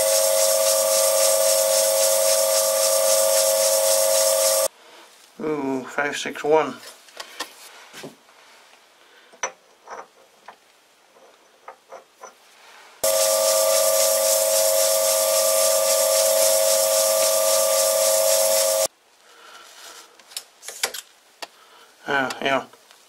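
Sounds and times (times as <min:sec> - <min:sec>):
pressurised air hissing: 0:00.0 - 0:04.7, 0:13.0 - 0:18.9.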